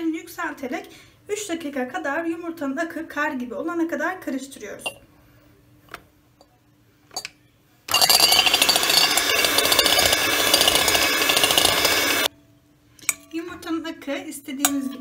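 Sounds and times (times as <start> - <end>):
electric hand mixer whining: 7.9 - 12.3.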